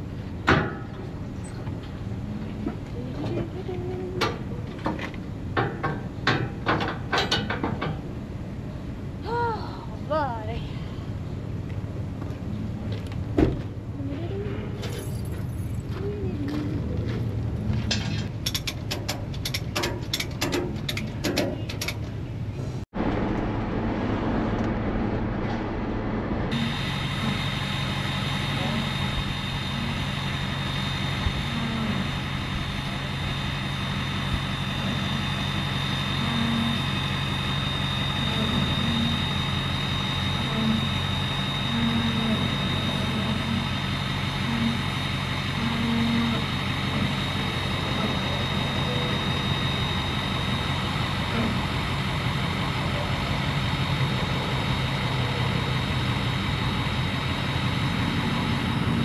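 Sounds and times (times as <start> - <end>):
truck engine running: 10.0 - 59.0
thin high whine: 23.0 - 53.2.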